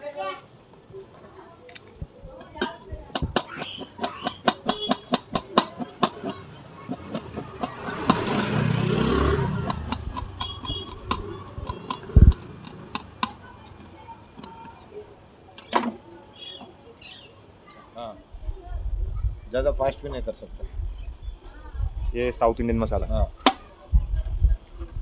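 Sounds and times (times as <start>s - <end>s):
passing vehicle engine: 6.8s - 12.8s.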